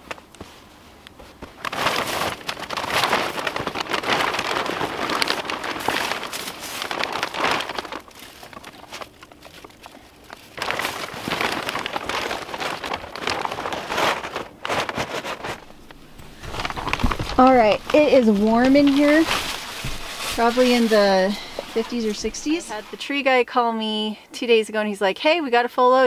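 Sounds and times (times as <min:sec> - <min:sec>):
plastic sheeting crinkling and rustling: 0:00.0 - 0:23.4.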